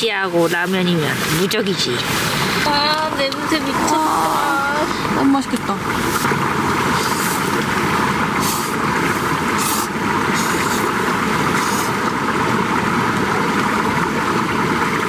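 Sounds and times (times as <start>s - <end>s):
loud rushing roar: 2.0s - 15.0s
slurping noodles: 5.9s - 7.6s, 9.5s - 12.1s.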